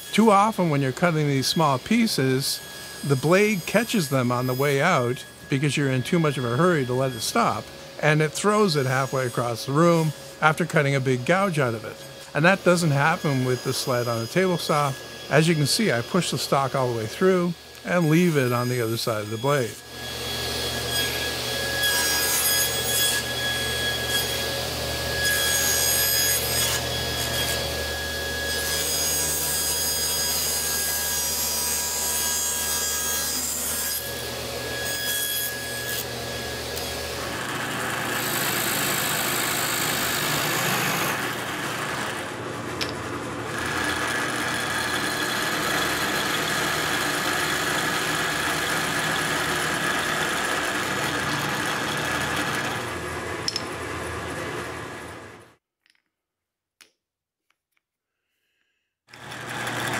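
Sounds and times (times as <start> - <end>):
table saw motor hum: 0.0 - 55.5, 59.1 - 59.9
drill press boring wood: 36.0 - 53.7, 59.1 - 59.9.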